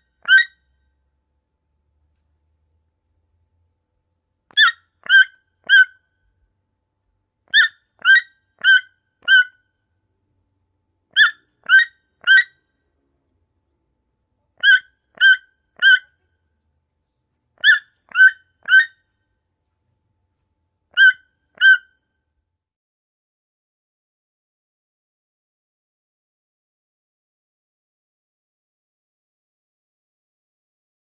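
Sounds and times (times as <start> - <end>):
toucan calling: 0.0 - 0.6, 4.5 - 6.0, 7.5 - 9.6, 11.1 - 12.6, 14.6 - 16.2, 17.6 - 19.0, 20.9 - 21.9.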